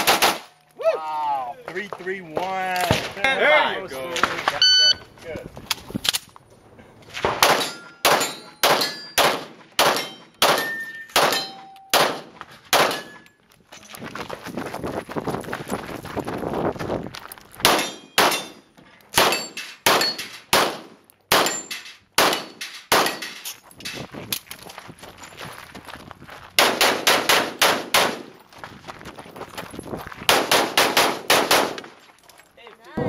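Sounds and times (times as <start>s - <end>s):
pistol shots: 0.0s - 0.5s, 7.3s - 13.2s, 17.6s - 18.6s, 19.2s - 23.4s, 26.6s - 28.3s, 30.3s - 31.9s.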